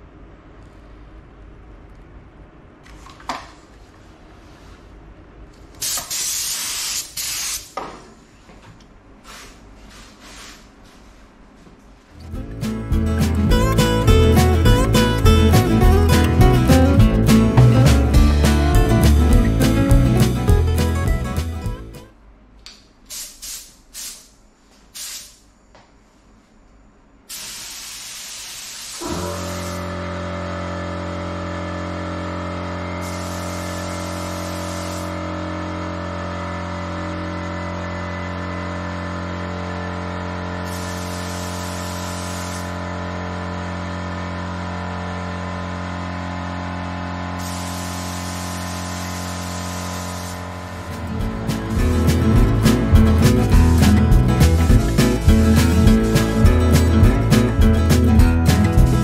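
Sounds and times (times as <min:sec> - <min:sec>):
spray gun air hissing: 0:05.8 - 0:07.8, 0:23.1 - 0:25.4, 0:27.3 - 0:29.9, 0:33.0 - 0:35.2, 0:40.6 - 0:42.8, 0:47.4 - 0:50.8
background music: 0:12.2 - 0:22.1, 0:51.0 - 0:59.0.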